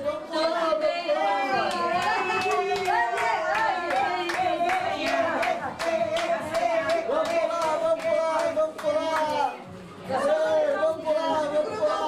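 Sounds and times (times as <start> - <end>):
rhythmic hand clapping: 1.6 - 9.6.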